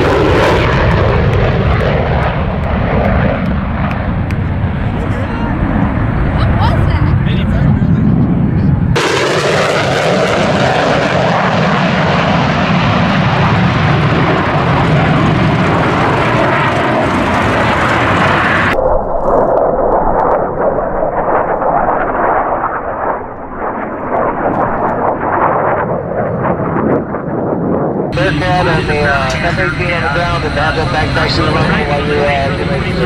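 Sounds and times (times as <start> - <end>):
fighter jet engine roaring: 0.0 - 33.0
jet passing: 0.0 - 33.0.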